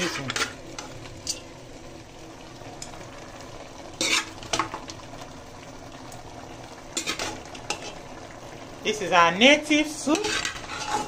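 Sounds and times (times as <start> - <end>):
soup sizzling: 0.0 - 11.0
metal ladle stirring in pot: 4.0 - 4.7, 6.9 - 8.0, 10.1 - 11.0.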